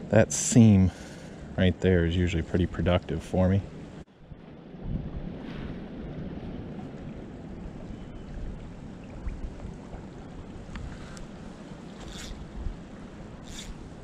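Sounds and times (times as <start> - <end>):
wind on microphone: 4.2 - 14.0
flowing creek: 6.6 - 14.0.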